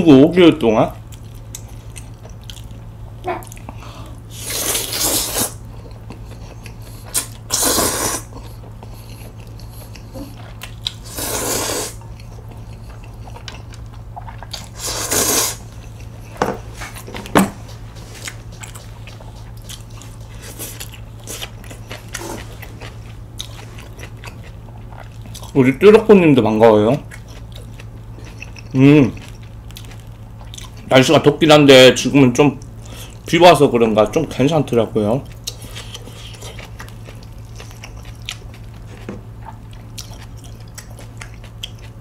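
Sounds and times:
steady low hum: 0.0 - 42.0
chewing: 1.0 - 3.8, 4.4 - 11.0, 12.0 - 14.8, 15.6 - 25.6, 26.9 - 30.9, 35.2 - 42.0.

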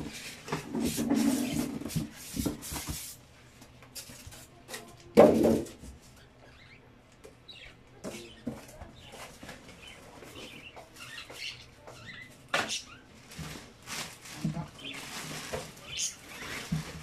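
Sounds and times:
styrofoam squeaking against cardboard: 0.8 - 2.5.

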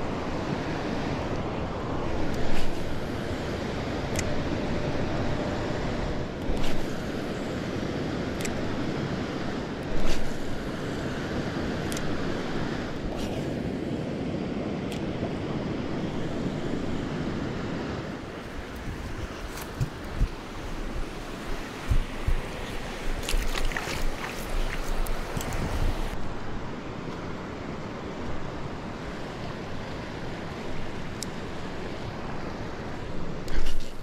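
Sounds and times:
wind buffeting microphone: 18.0 - 26.2
river water rushing over rocks: 18.1 - 26.6.

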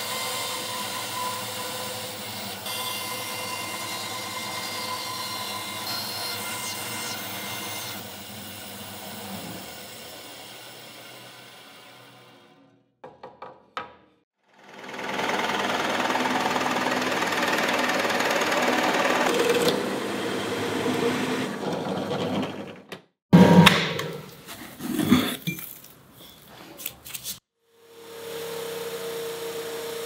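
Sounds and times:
drill press boring wood: 0.0 - 12.6, 14.6 - 23.0.

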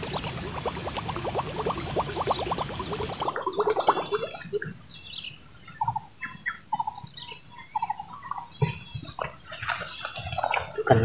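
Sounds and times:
birds chirping: 3.5 - 11.0.

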